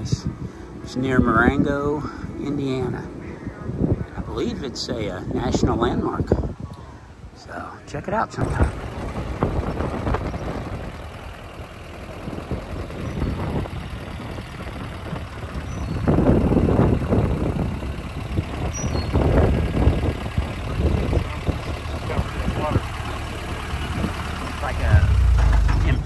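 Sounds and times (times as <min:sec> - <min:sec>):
road and wind noise: 0:00.0 - 0:26.0
car engine running: 0:08.4 - 0:26.0.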